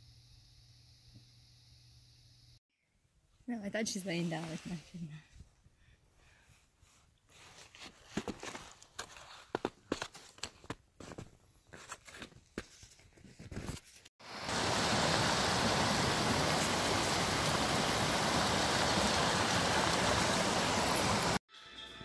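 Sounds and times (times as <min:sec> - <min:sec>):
footsteps crunching in snow: 0:06.8 - 0:14.1
creek cascading over rocks: 0:14.2 - 0:21.4.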